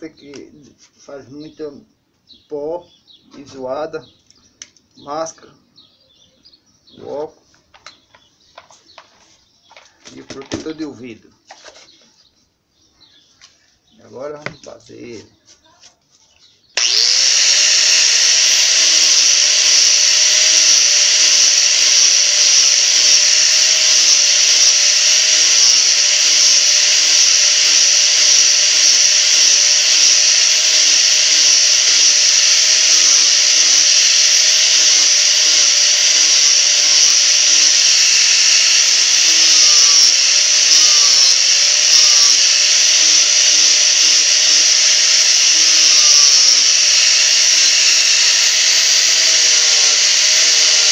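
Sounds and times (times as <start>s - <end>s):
angle grinder running: 16.8s - 50.9s
grinder disc rasping on wood: 16.8s - 50.9s.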